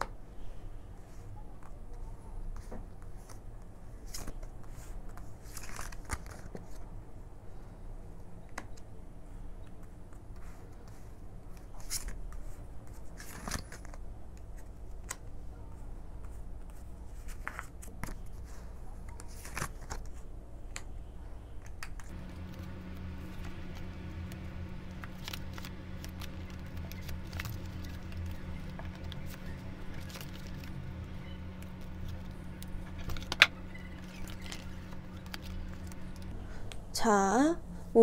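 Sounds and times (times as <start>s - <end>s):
steady low hum: 0.0s - 38.0s
cards clicking and swishing: 2.5s - 6.9s, 9.7s - 15.4s, 16.2s - 20.9s, 21.6s - 36.3s.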